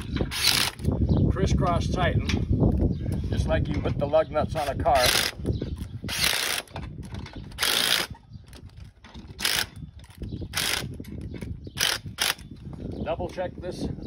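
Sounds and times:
cordless power driver running: 0.3s - 0.9s, 6.1s - 6.7s, 7.6s - 8.1s.

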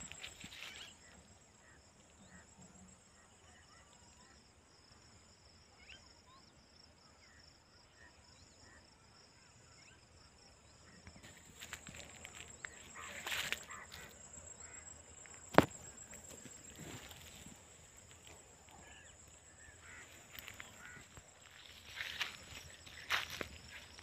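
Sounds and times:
insect chirring: 0.0s - 2.8s, 11.0s - 24.0s.

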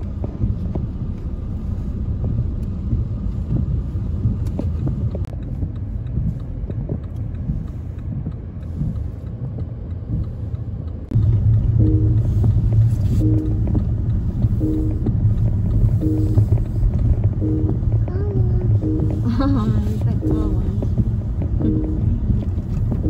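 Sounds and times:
car rumble on wet road: 0.0s - 23.0s
light ticks: 0.0s - 23.0s
music: 11.7s - 12.5s, 13.2s - 19.3s, 19.9s - 20.9s, 21.6s - 23.0s.

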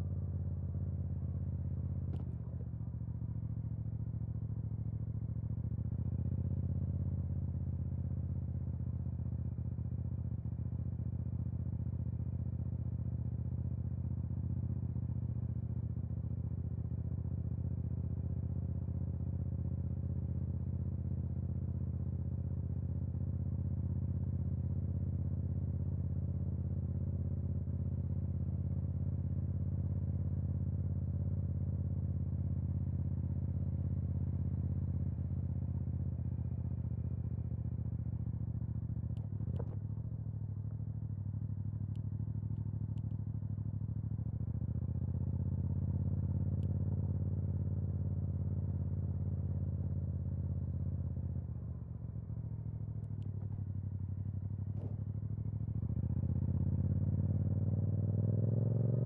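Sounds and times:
motorcycle engine running: 32.8s - 59.0s.

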